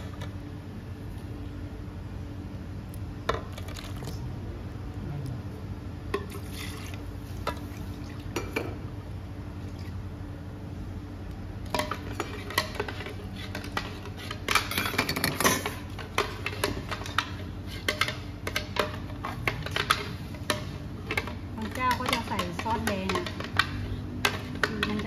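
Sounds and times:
steady low hum: 0.0s - 25.0s
kitchenware clinking and tapping: 11.7s - 25.0s.

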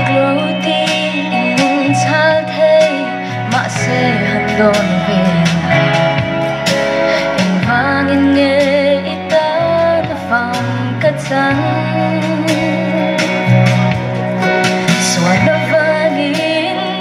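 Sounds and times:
instrumental backing music: 0.0s - 17.0s
woman singing into a microphone: 0.0s - 17.0s.

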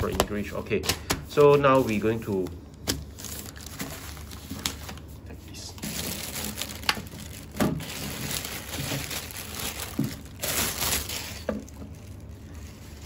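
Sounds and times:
plastic bag crinkling: 1.8s - 13.0s.

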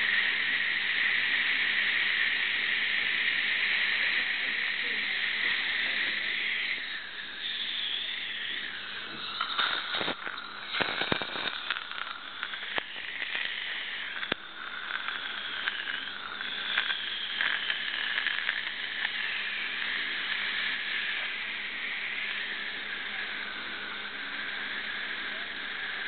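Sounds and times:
saliva ejector sucking air: 0.0s - 26.0s
fluid crackling up a tube: 6.7s - 21.4s.

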